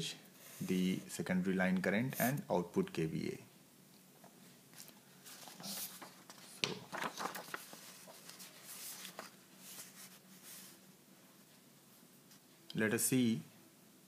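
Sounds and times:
paper rustling and sliding: 0:04.7 - 0:10.8.

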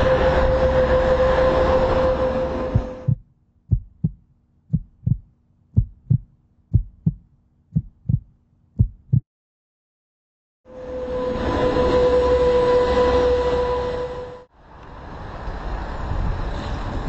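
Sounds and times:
heartbeat thumps: 0:02.7 - 0:09.2.

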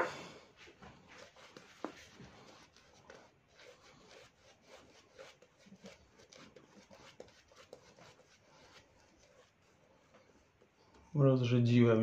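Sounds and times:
shaving brush squishing lather: 0:01.1 - 0:10.7.

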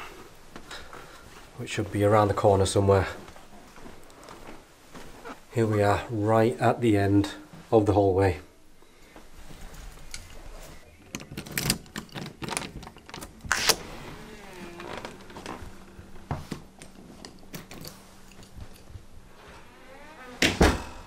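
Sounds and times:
key rattling in a lock: 0:11.1 - 0:13.3
wooden door opening: 0:11.1 - 0:16.7, 0:19.3 - 0:21.0.

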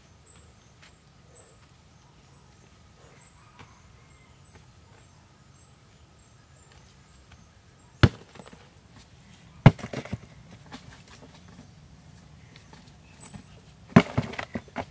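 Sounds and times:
heavy rocks thudding on soil: 0:08.0 - 0:08.7, 0:09.6 - 0:11.6, 0:13.3 - 0:14.9
clatter of smaller rocks: 0:09.6 - 0:11.6, 0:13.2 - 0:14.9.

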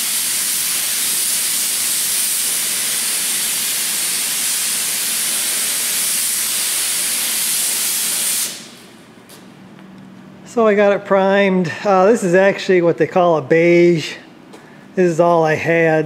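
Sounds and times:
paint spray gun hissing: 0:00.0 - 0:08.8.

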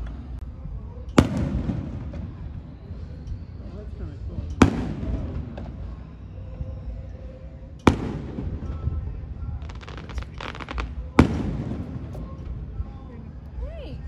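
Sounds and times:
crackling firework stars: 0:00.0 - 0:13.1
firework shells booming: 0:01.2 - 0:02.6, 0:04.5 - 0:06.0, 0:07.8 - 0:12.6.

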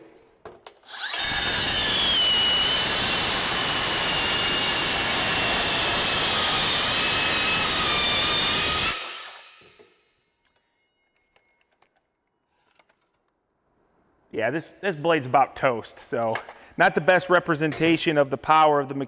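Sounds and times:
circular saw cutting metal: 0:00.8 - 0:10.2.

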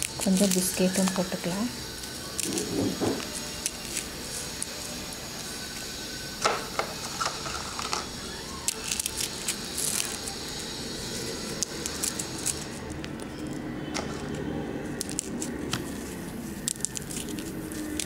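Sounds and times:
biscuit pieces clicking and rustling: 0:00.0 - 0:18.0.

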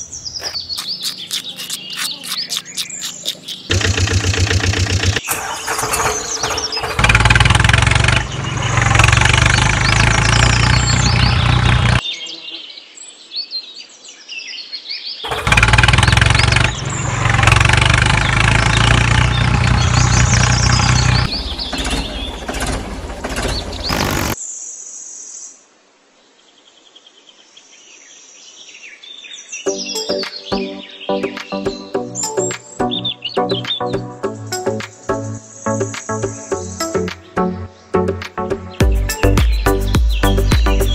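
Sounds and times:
tractor engine: 0:00.0 - 0:12.0, 0:15.3 - 0:24.4
birds chirping: 0:00.0 - 0:13.2, 0:14.7 - 0:24.4, 0:29.6 - 0:40.9.

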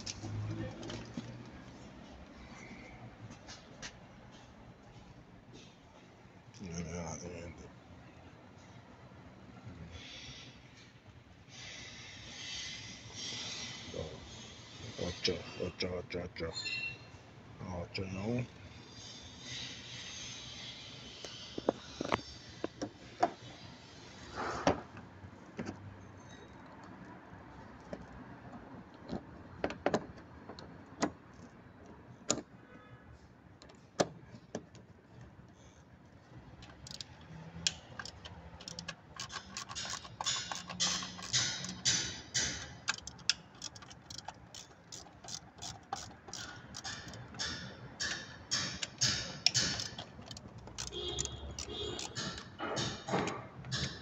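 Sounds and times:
socket ratchet wrench clicking: 0:36.6 - 0:53.0
tools clinking on metal: 0:37.7 - 0:54.0.

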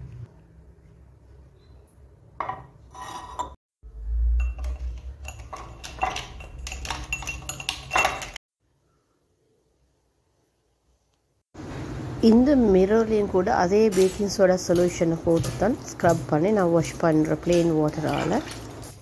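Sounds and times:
ceramic containers clinking on glass: 0:04.4 - 0:08.4.

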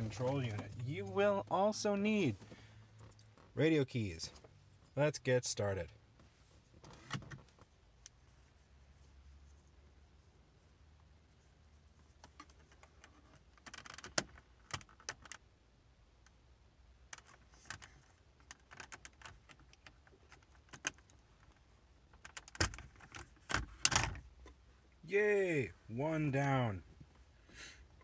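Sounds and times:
plastic clicks and scrapes: 0:17.1 - 0:24.2.

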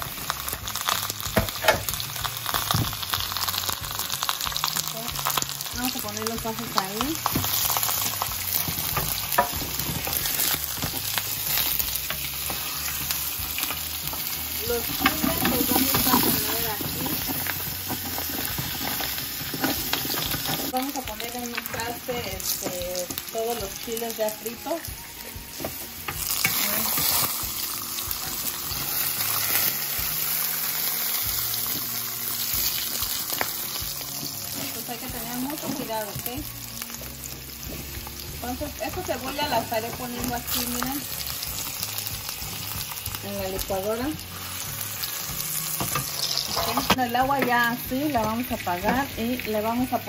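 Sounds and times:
food sizzling in hot oil: 0:00.0 - 0:50.0
tongs tapping pan: 0:12.0 - 0:18.2.

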